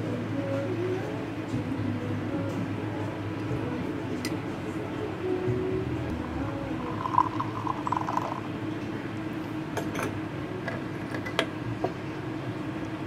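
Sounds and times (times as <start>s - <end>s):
steady low hum: 0.0s - 13.0s
espresso trickling into a glass jug: 6.8s - 8.5s
cup clicking and clinking: 7.0s - 8.4s.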